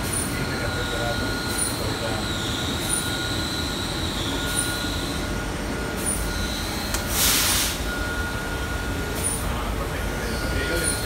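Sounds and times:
machinery running: 0:00.0 - 0:11.0
loud hiss: 0:07.1 - 0:07.8.

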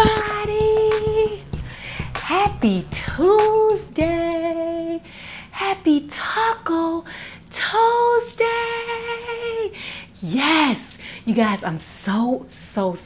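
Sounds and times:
woman singing: 0:00.0 - 0:09.8.

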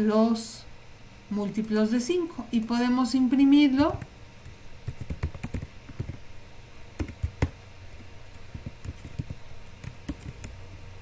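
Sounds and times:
typing on computer keyboard: 0:04.0 - 0:06.2, 0:07.0 - 0:07.6, 0:08.3 - 0:10.6.

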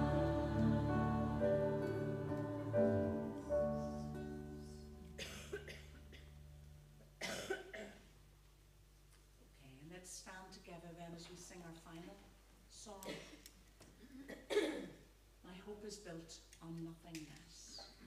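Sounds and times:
band chord on keyboard and guitars: 0:00.0 - 0:04.4
person coughing: 0:05.2 - 0:06.3, 0:07.2 - 0:08.1, 0:14.0 - 0:15.0.

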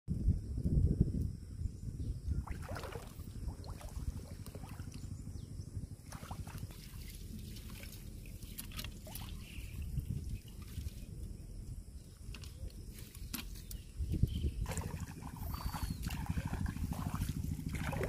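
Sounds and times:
steady low rumble: 0:00.1 - 0:18.0
water splashing and dripping: 0:02.5 - 0:05.0, 0:06.1 - 0:11.0, 0:14.6 - 0:18.0.

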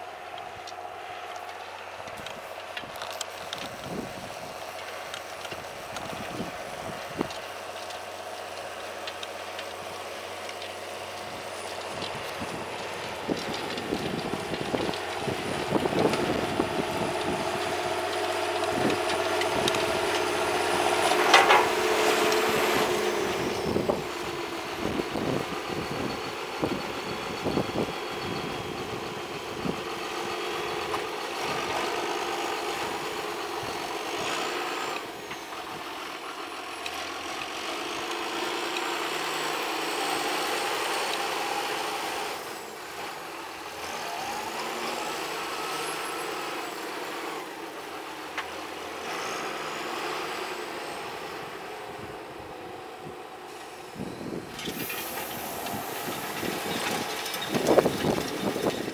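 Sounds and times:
tractor engine under load: 0:00.0 - 0:58.9.

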